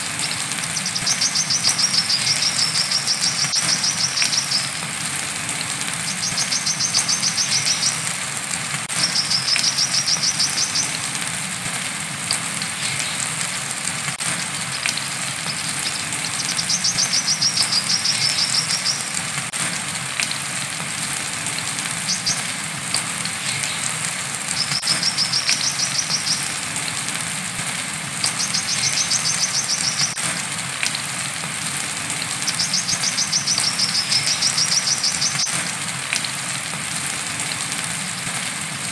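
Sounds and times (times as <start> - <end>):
rain hissing: 0.0 - 38.9
bird singing high trills: 0.2 - 4.8, 6.1 - 8.0, 15.5 - 19.2, 28.4 - 30.2, 32.4 - 35.6.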